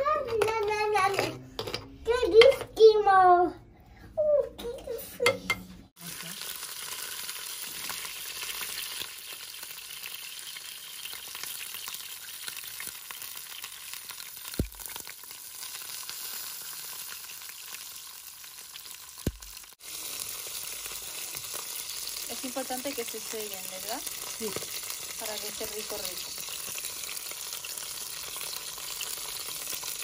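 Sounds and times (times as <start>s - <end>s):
vegetables sizzling in oil: 6.0s - 30.0s.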